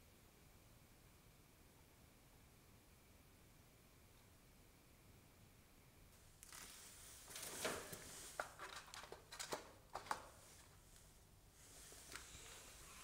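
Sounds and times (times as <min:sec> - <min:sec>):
brushing rustle: 0:06.4 - 0:08.5, 0:10.4 - 0:13.0.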